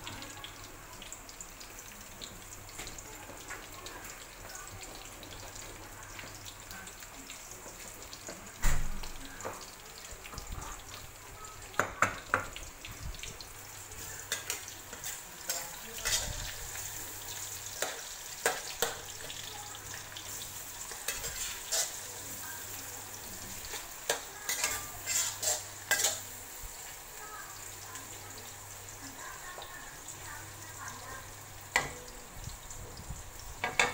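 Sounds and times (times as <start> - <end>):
garlic and onions sizzling in oil: 0.0 - 33.9
metal spatula scraping a wok: 14.3 - 17.1, 20.3 - 22.1, 23.4 - 26.3.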